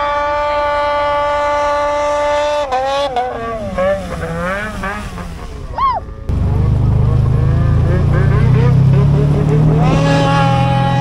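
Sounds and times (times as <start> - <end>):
snowmobile engine running hard: 0.0 - 11.0.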